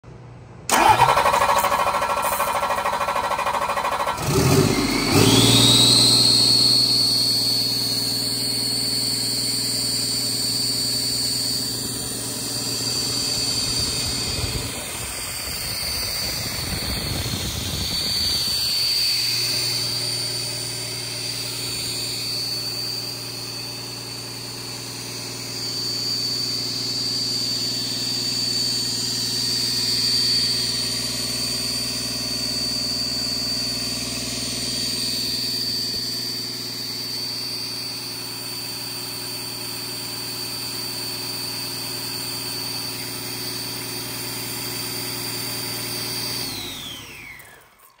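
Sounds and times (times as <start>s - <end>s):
high steady whine: 0.1s - 44.3s
diesel engine running: 0.7s - 27.0s.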